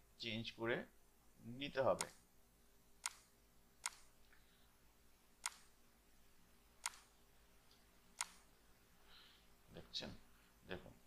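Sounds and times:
computer mouse clicks: 6.8 - 7.1.

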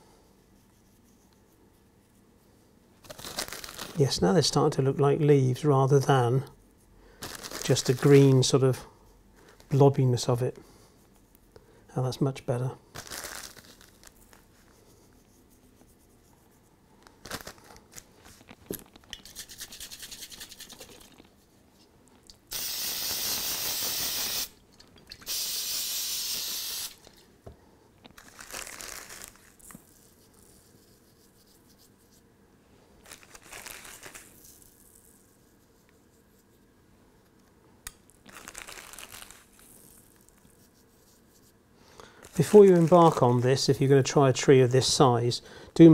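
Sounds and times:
rustling from handling model tree: 7.2 - 8.8, 13.0 - 16.4, 17.0 - 22.0, 33.0 - 36.7, 42.2 - 44.1
aerosol spray hiss: 22.5 - 24.6, 25.2 - 27.0.

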